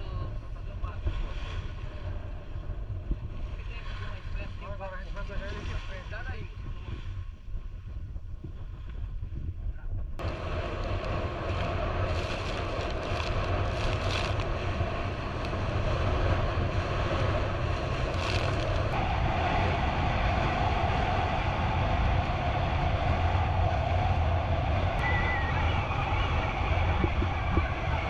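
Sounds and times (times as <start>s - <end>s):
speedboat engine drone: 0.0s - 5.3s, 10.2s - 28.0s
wind and rushing water: 0.0s - 9.6s, 10.2s - 28.0s
mid-pitched hum: 0.0s - 28.0s
spray splashes: 10.2s - 15.9s.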